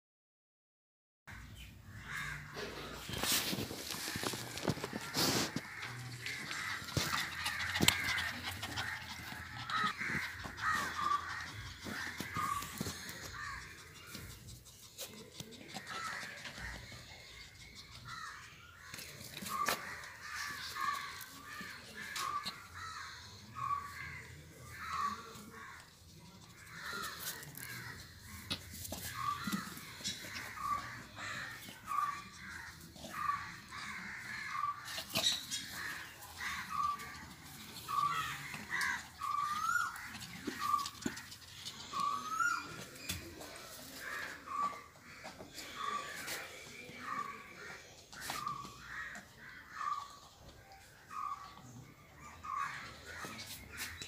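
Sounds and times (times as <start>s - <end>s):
rustling: 2.6s - 15.0s.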